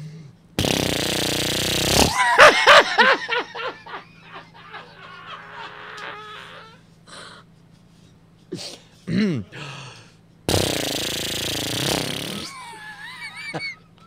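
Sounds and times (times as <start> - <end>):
raspberry lip-flutter: 0.6 - 2.2, 10.5 - 12.5
laughter: 2.1 - 6.8, 12.4 - 14.0.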